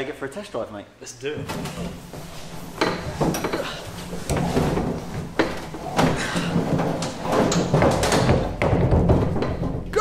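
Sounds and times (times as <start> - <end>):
knocks and bumps: 1.4 - 10.0
clothing rustle: 1.5 - 7.9.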